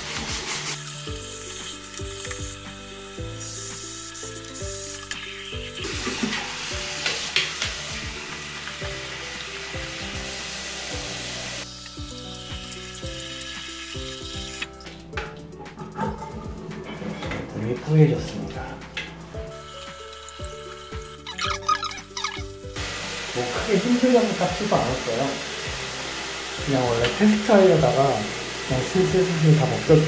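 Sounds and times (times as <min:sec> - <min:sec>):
background music: 0:00.0 - 0:30.0
tap water splashing on metal: 0:03.8 - 0:16.7, 0:18.9 - 0:19.2, 0:24.5 - 0:30.0.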